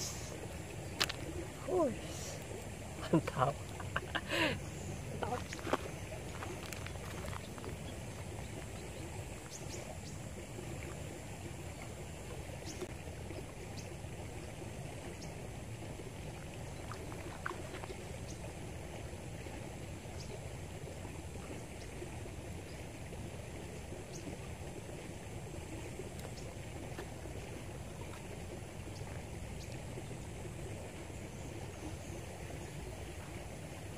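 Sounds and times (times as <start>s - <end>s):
river rushing: 0.0s - 10.8s.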